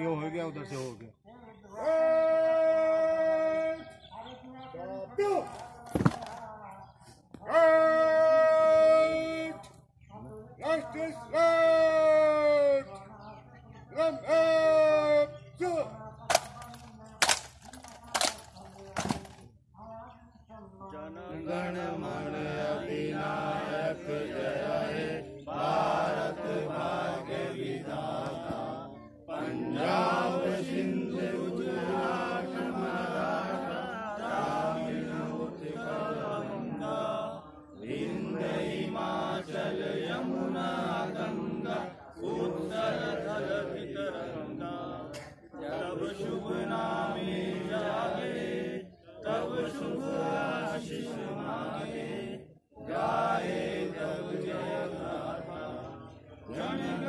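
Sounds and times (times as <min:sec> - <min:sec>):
men singing in unison: 0:20.8 - 0:57.0.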